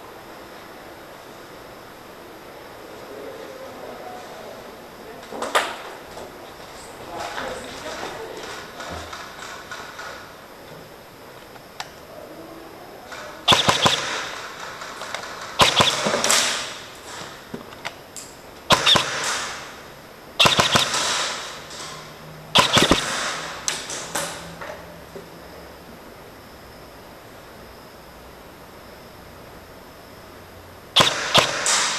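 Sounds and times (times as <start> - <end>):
airsoft rifle bursts: 13.1 - 17.2, 18.7 - 19.8, 20.4 - 21.9, 22.6 - 24.2, 31.0 - 31.9.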